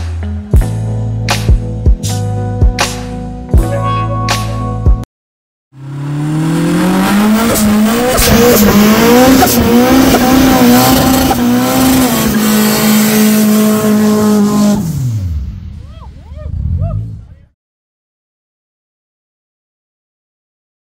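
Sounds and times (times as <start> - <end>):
car engine revving: 5.8 - 15.8.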